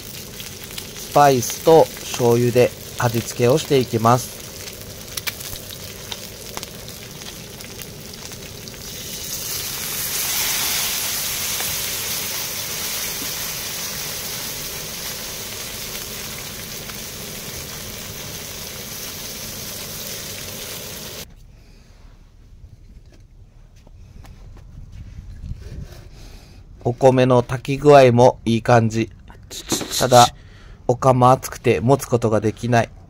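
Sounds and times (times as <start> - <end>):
food sizzling on a griddle pan: 0.0 - 21.3
oil spitting pops: 29.4 - 30.3.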